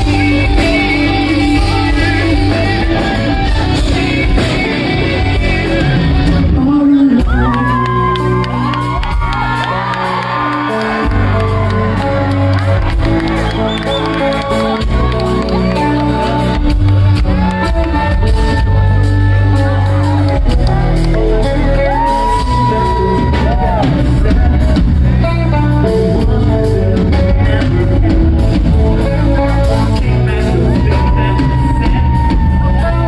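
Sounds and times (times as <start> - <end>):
man singing into a microphone: 0.0 - 8.7, 20.8 - 33.0
bass guitar: 0.0 - 33.0
drums: 0.0 - 33.0
electric guitar: 0.0 - 33.0.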